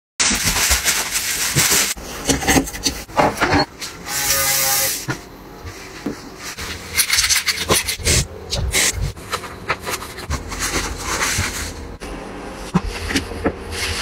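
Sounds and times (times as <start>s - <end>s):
rustling handling noises: 8.5s - 12.0s.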